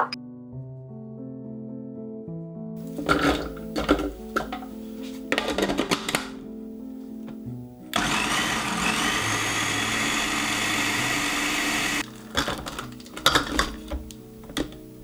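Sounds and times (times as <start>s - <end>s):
clicks and knocks: 5.3s - 6.4s, 12.1s - 14.9s
food processor whirring: 7.9s - 12.5s.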